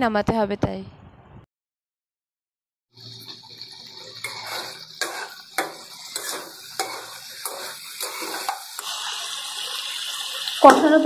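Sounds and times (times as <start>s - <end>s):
hiss of frying: 2.9s - 11.0s
metal spatula scraping pan: 3.0s - 10.5s.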